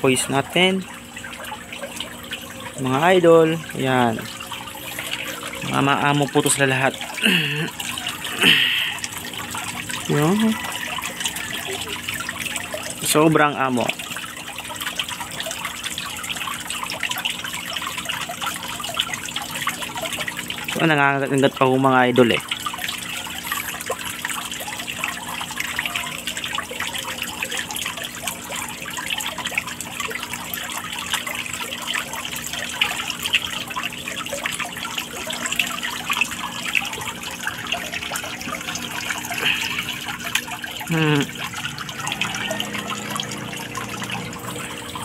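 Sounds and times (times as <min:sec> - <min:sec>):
fish splashing and slurping: 0:00.0 - 0:45.0
trickling water: 0:00.0 - 0:45.0
low steady hum: 0:22.2 - 0:45.0.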